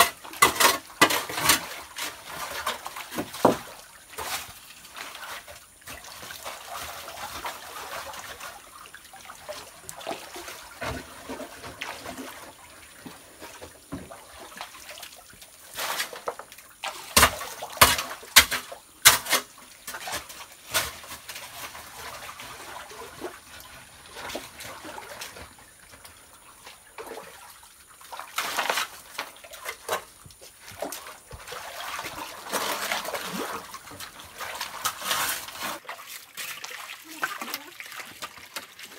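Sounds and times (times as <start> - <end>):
digging gravel and soil: 0.0 - 8.7, 15.2 - 26.1, 27.8 - 38.9
water trickling and splashing: 0.0 - 38.9.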